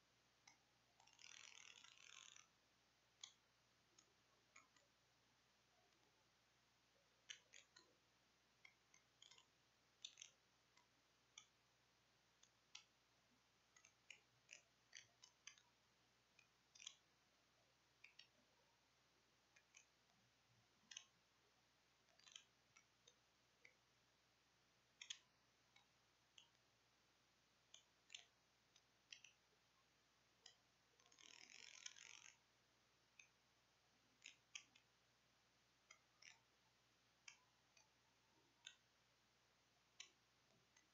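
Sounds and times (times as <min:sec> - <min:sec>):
faint clicks: 0:00.4 - 0:02.5, 0:03.2 - 0:03.4, 0:07.2 - 0:07.9, 0:08.6 - 0:11.6, 0:12.4 - 0:12.9, 0:16.4 - 0:17.1, 0:18.0 - 0:18.4, 0:20.8 - 0:21.2, 0:22.0 - 0:23.8, 0:24.9 - 0:26.6, 0:27.7 - 0:29.4, 0:30.4 - 0:32.4, 0:34.2 - 0:34.9, 0:37.2 - 0:38.9, 0:39.9 - 0:40.9.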